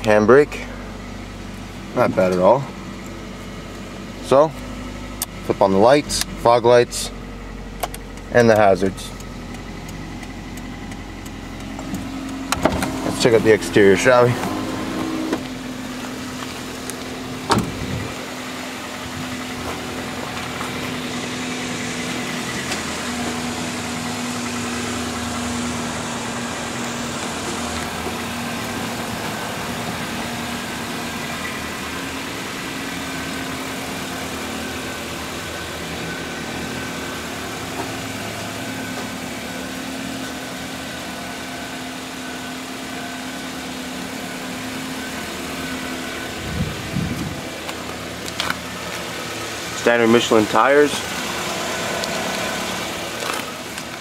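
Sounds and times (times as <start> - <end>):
car engine idling: 0.0 - 54.0
car door shutting: 11.6 - 13.6, 14.2 - 18.2.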